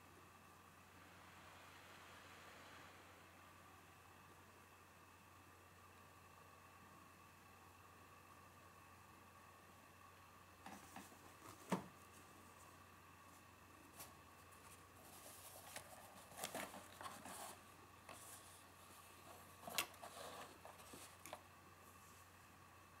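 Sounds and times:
cardboard box rustling and clicking: 0:15.3 - 0:17.6.

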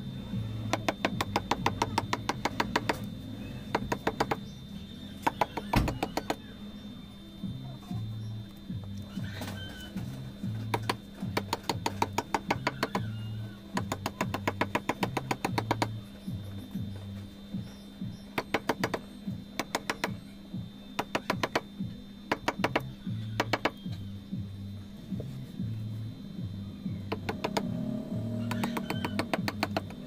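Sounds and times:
background music: 0:00.0 - 0:30.0
mallet tapping chisel on stone: 0:00.7 - 0:03.1, 0:03.7 - 0:04.4, 0:10.7 - 0:13.1, 0:13.7 - 0:15.9, 0:22.3 - 0:23.8, 0:27.1 - 0:27.7, 0:28.5 - 0:30.0.

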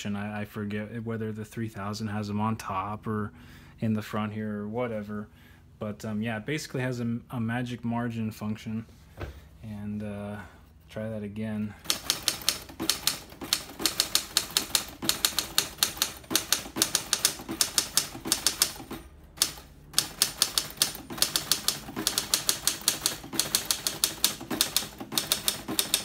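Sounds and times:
typewriter typing fast: 0:11.8 - 0:26.0.

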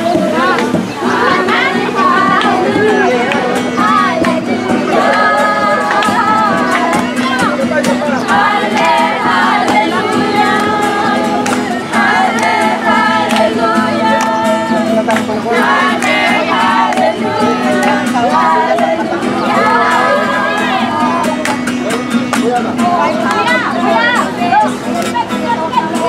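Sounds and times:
acoustic guitar: 0:00.0 - 0:26.0
group singing: 0:00.0 - 0:26.0.

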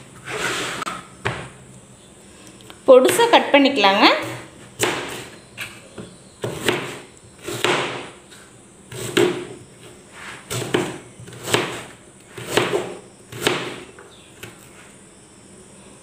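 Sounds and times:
knife chopping on plastic board: 0:04.2 - 0:08.2, 0:08.9 - 0:09.6, 0:10.5 - 0:14.6.

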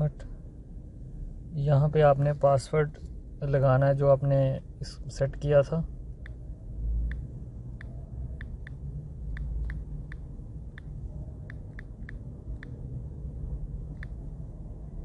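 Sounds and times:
low background rumble: 0:00.0 - 0:15.0
phone screen tapping ticks: 0:07.8 - 0:10.9.

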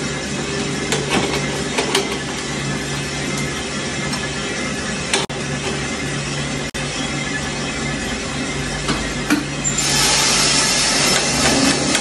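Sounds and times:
coffee roaster hum: 0:00.0 - 0:12.0.

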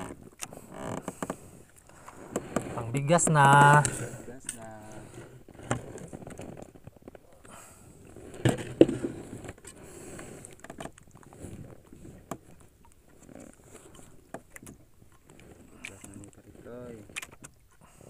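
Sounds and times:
knocks and clatter on boat deck: 0:08.3 - 0:09.7.

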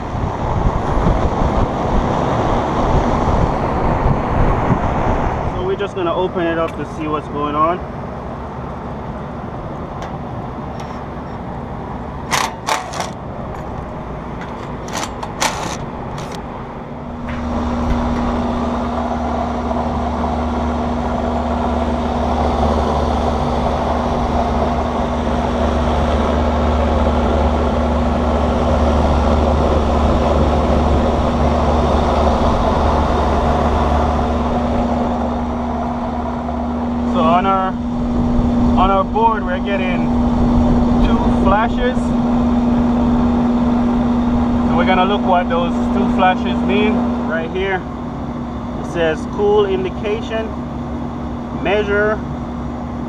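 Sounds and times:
air conditioning unit humming: 0:00.0 - 0:53.0
service panel clicks and knocks: 0:12.3 - 0:16.4.

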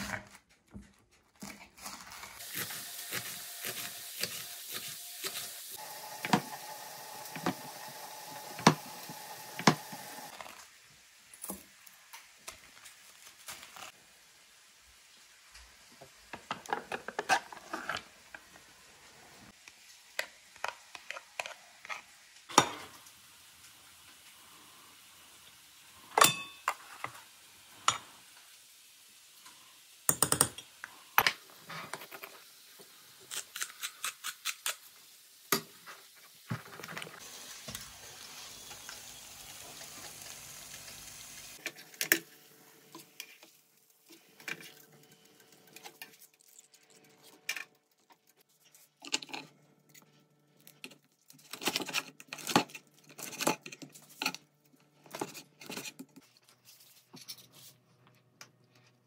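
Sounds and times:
chicken sizzling on grill: 0:02.4 - 0:30.1, 0:30.7 - 0:46.2
spoons clinking in glass bowl: 0:26.2 - 0:26.8.

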